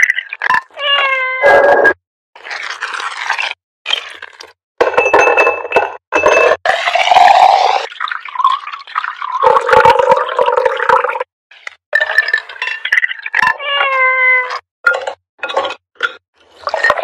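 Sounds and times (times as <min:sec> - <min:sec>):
liquid pouring over ice: 0:02.4 - 0:04.4, 0:06.8 - 0:11.1
muddler clinking against glass: 0:04.8 - 0:06.6.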